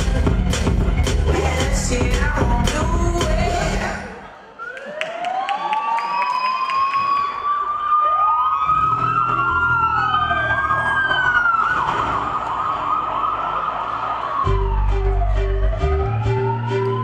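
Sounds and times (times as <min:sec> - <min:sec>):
low bass notes: 0:00.0 - 0:04.0, 0:14.4 - 0:17.0
siren wails: 0:04.6 - 0:17.0.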